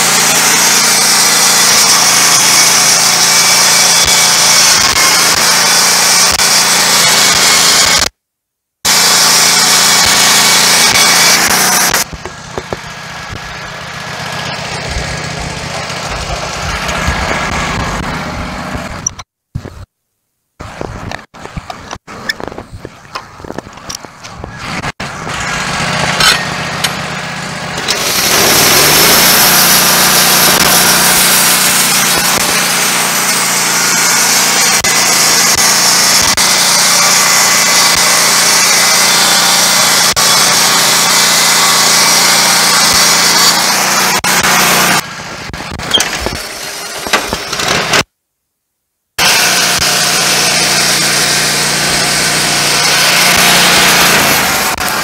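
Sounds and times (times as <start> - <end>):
band saw cutting log: 0.0 - 8.2, 8.8 - 19.8, 20.6 - 48.1, 49.2 - 55.0
petrol engine drone: 8.9 - 19.2, 20.6 - 48.1, 49.2 - 55.0.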